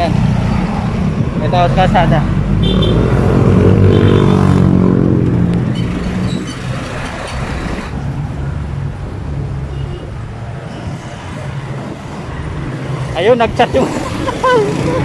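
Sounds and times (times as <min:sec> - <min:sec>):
large vehicle engine passing: 0:00.0 - 0:08.0
road traffic: 0:00.0 - 0:15.0.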